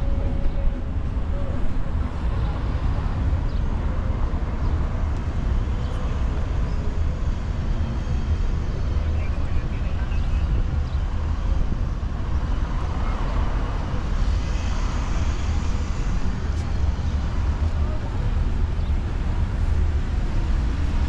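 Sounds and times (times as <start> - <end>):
traffic rumble: 0.0 - 21.0.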